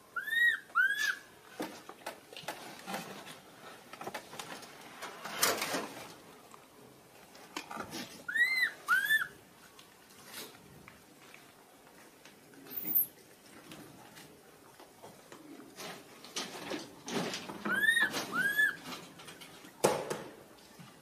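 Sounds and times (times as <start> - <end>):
infant monkey crying: 0.1 - 1.2, 8.3 - 9.4, 17.7 - 18.8.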